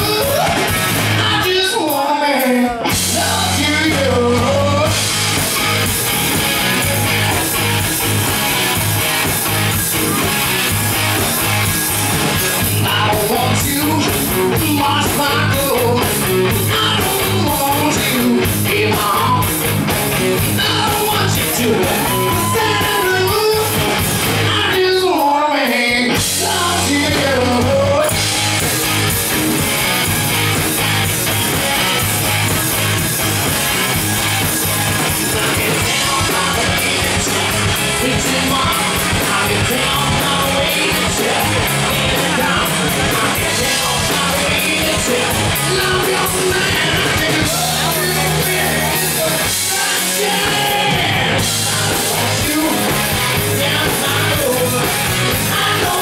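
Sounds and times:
man singing: 0.0s - 5.1s, 12.6s - 28.3s, 34.9s - 56.0s
bass guitar: 0.0s - 56.0s
drums: 0.0s - 56.0s
electric guitar: 0.0s - 56.0s.

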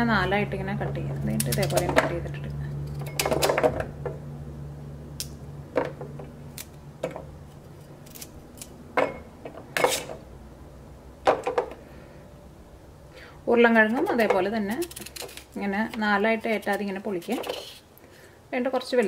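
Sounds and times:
knife scrape: 9.8s - 10.2s, 14.0s - 15.6s, 16.4s - 17.9s
knife cutting carrot: 13.8s - 17.8s.

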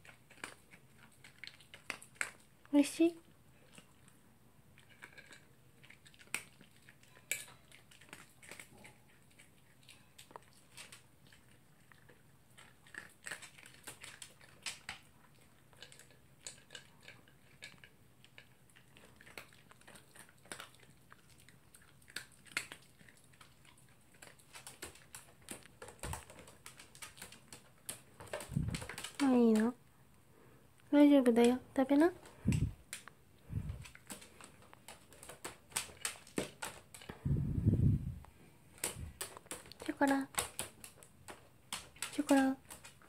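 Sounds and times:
dog crunching dry kibble: 0.0s - 29.8s, 31.2s - 37.2s, 38.7s - 43.0s
kibble clicking in plastic bowl: 24.2s - 29.8s, 33.8s - 37.2s, 38.8s - 43.0s.

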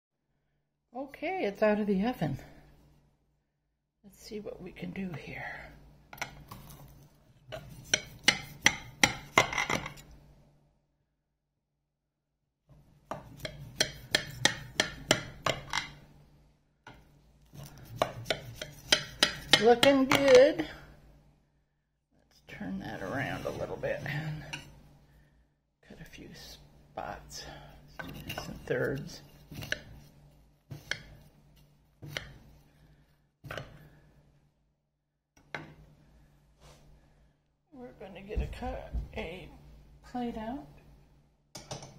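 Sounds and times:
knife cutting cake: 17.5s - 19.7s.

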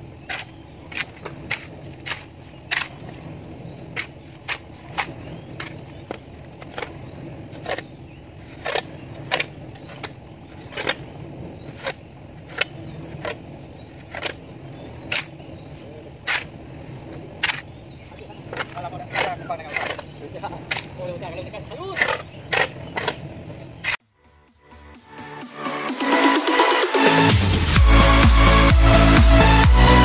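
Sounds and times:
steady low hum: 0.0s - 24.0s
trowels scraping wet cement: 0.2s - 3.2s, 3.8s - 16.6s, 17.4s - 24.0s.

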